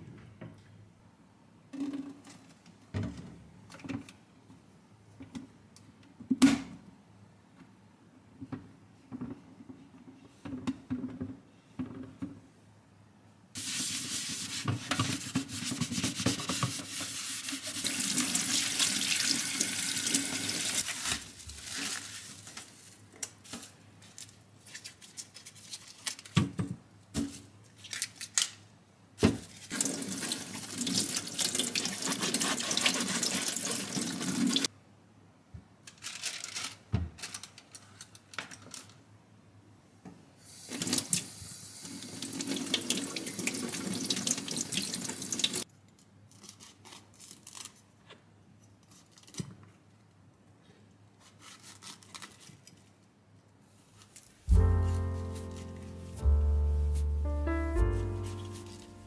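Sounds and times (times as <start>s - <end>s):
knocks and handling of produce: 26.3s - 27.5s, 36.9s - 37.3s, 54.5s - 56.4s
tap water running into steel sink: 29.8s - 34.7s, 41.8s - 45.6s.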